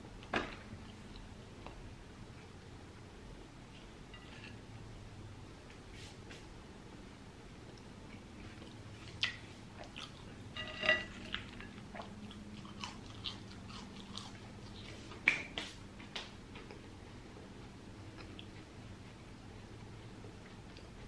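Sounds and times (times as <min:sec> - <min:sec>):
chewing crispy fries: 0:07.6 - 0:15.4, 0:16.5 - 0:21.0.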